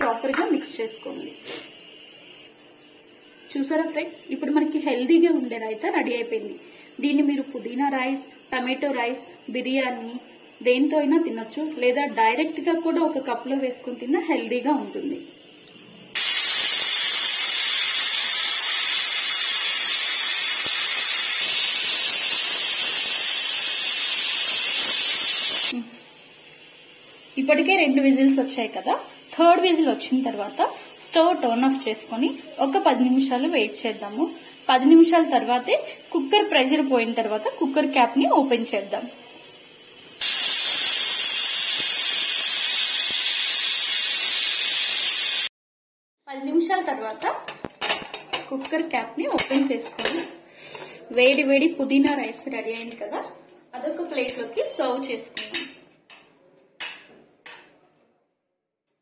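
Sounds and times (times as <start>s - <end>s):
pressure cooker whistling: 0.0s - 45.5s.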